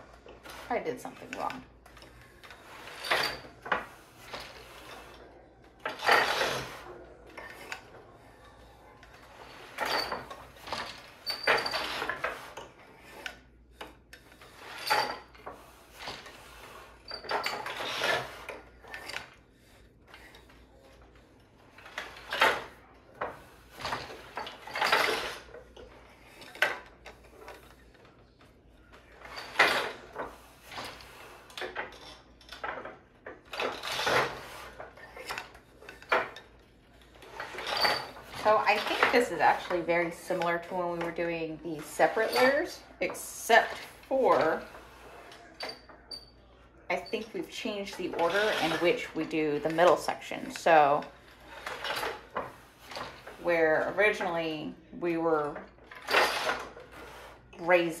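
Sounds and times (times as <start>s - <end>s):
wooden loom clacking and knocking: 0.3s - 5.1s, 9.3s - 19.3s, 21.8s - 28.0s, 29.2s - 36.6s, 37.2s - 44.9s, 47.5s - 54.5s.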